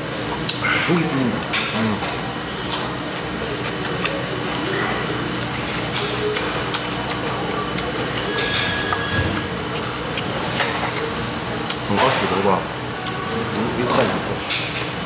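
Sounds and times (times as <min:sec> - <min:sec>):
room hum: 0:00.0 - 0:15.0
chewing: 0:00.2 - 0:12.2.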